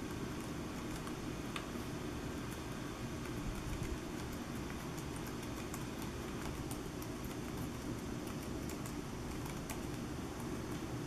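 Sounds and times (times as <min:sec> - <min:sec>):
small keyboard keys clicking: 0:03.2 - 0:10.8.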